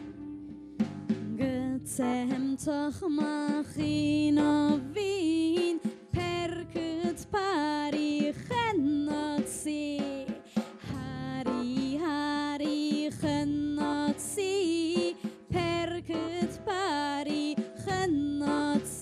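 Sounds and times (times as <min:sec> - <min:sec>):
live band playing: 0:00.0 - 0:02.5, 0:09.4 - 0:19.0
woman singing: 0:01.2 - 0:19.0.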